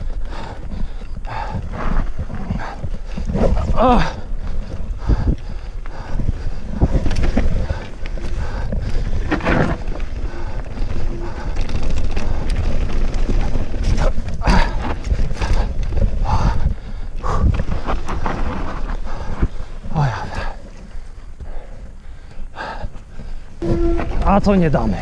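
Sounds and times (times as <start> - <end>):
wind buffeting microphone: 0.0 - 22.2
mountain bike tyres on dirt: 0.0 - 25.0
bike parts rattling: 2.0 - 21.0.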